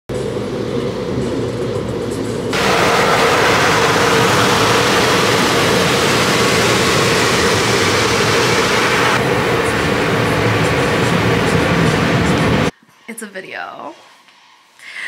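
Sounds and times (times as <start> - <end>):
low rumble: 0.1 - 12.7
car wash water spraying: 2.5 - 12.7.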